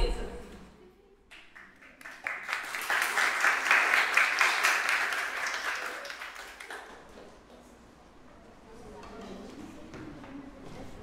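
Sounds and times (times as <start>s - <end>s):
audience applauding: 1.5s - 7.4s.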